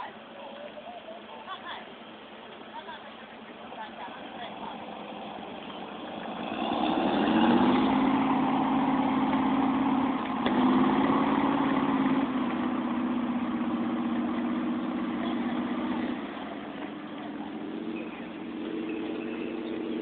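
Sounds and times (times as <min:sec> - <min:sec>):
vehicle engine revving: 0:04.2 - 0:20.0.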